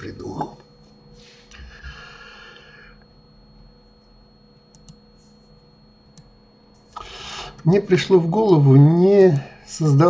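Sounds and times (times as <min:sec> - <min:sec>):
faint electrical hum: 0:00.0 - 0:10.0
computer mouse clicks: 0:04.7 - 0:05.0.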